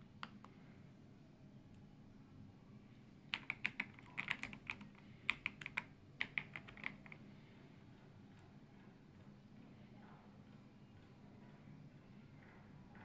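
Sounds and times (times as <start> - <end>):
mechanical keyboard typing: 3.3 - 7.2.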